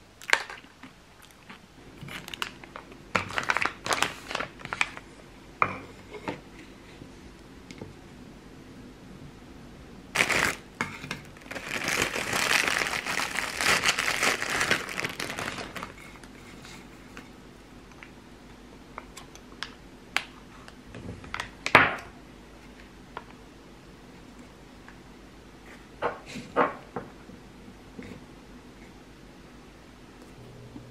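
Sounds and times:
plastic packaging crinkling: 0:00.2 - 0:00.8, 0:02.0 - 0:05.1, 0:10.2 - 0:16.4.

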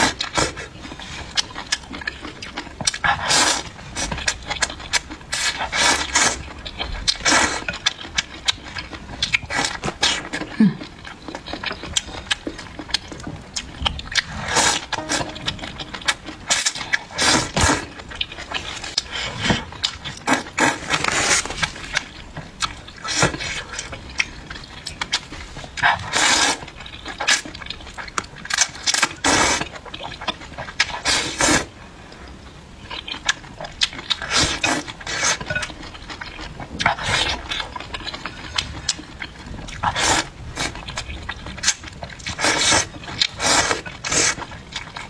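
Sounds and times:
mouth and chewing sounds: 0:00.0 - 0:45.0
slurping noodles: 0:03.1 - 0:04.1, 0:05.3 - 0:06.5, 0:14.2 - 0:15.0, 0:25.9 - 0:27.4, 0:39.8 - 0:40.8, 0:42.2 - 0:44.5.

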